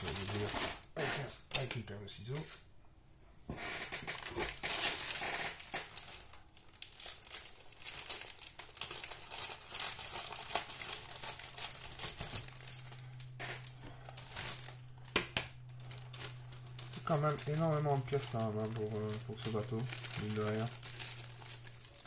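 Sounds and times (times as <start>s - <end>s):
plastic bag crinkling: 0.0s - 0.9s, 4.1s - 22.0s.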